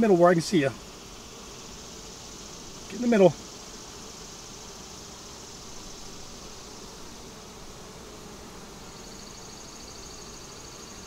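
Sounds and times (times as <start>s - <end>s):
honeybees buzzing: 0.0s - 11.0s.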